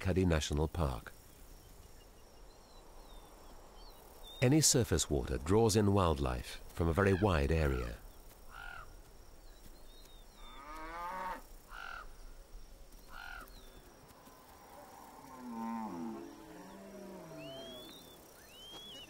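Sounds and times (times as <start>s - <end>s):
cattle lowing: 14.5s - 19.0s
bird chirps: 16.0s - 19.0s.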